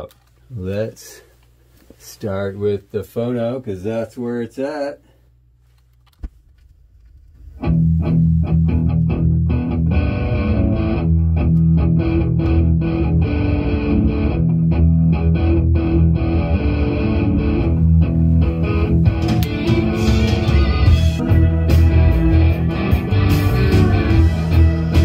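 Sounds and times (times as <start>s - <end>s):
rock music with electric guitar: 7.6s - 25.0s.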